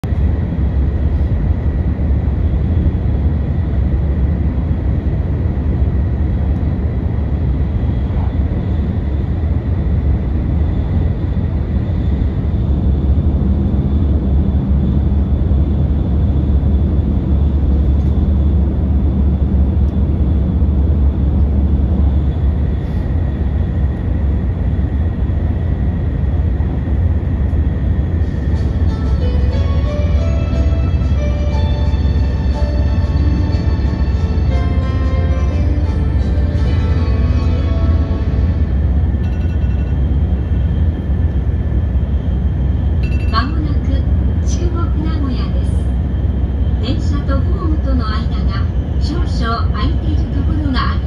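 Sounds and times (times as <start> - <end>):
train low rumble: 0.0 - 51.0
faint high whine: 30.2 - 48.9.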